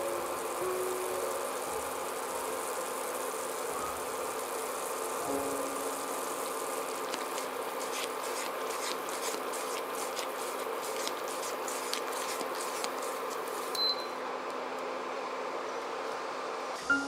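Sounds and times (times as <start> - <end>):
mixture bubbling at a boil: 6.0 - 14.0.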